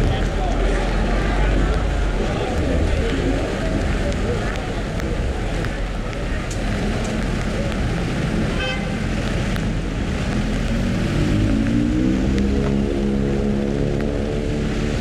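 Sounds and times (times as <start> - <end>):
rumble of car engines and tyres: 0.0 - 15.0
car horn toot: 8.5 - 9.0.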